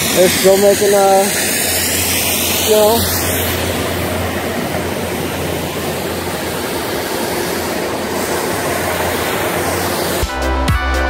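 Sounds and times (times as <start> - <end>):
snow fan gun rushing hiss: 0.0 - 10.5
music: 10.2 - 11.0.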